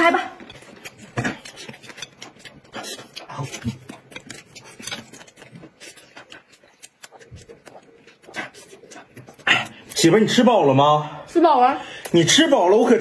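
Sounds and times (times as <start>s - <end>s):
chewing and lip smacks: 0.0s - 10.5s.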